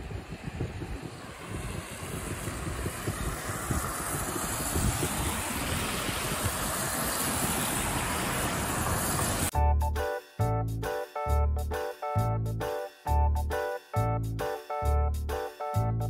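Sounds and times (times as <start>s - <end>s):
car tyres on a wet road: 0.0s - 9.5s
wind buffeting the microphone: 0.0s - 9.5s.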